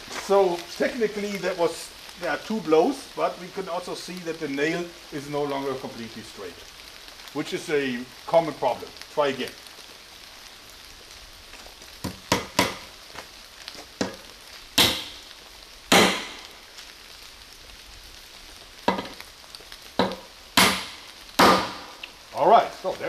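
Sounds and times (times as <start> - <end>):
hammer striking nail into wood: 15.9 - 16.3, 20.0 - 21.8.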